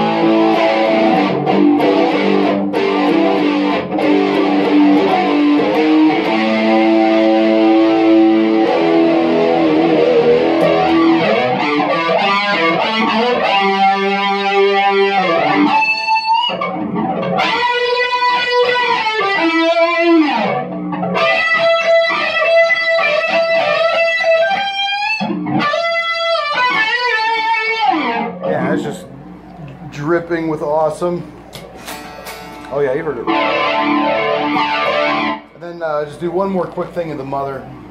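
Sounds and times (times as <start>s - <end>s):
electric guitar with effects: 0.0s - 36.2s.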